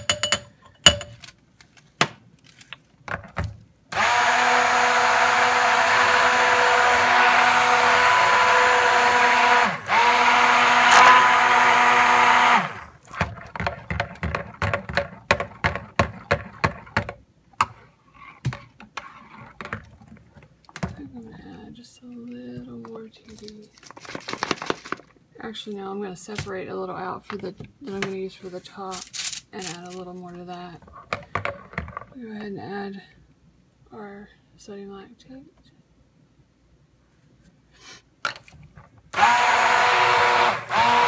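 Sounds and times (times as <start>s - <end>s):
stick blender running: 3.9s - 13.4s, 39.1s - 41.0s.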